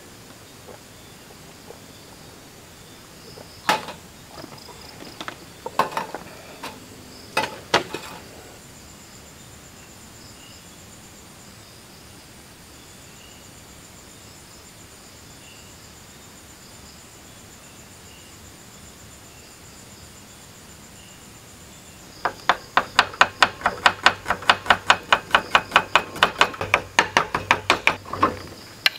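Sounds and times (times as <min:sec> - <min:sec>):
night insects chorus: 0:00.0 - 0:28.9
sharp knocks and clicks: 0:03.6 - 0:06.8, 0:07.4 - 0:08.3, 0:22.2 - 0:28.9.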